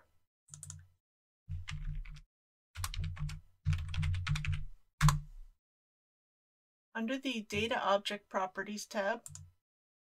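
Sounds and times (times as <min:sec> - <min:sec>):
keyboard typing: 0:00.5 - 0:00.9, 0:01.5 - 0:02.2, 0:02.8 - 0:05.2, 0:09.2 - 0:09.5.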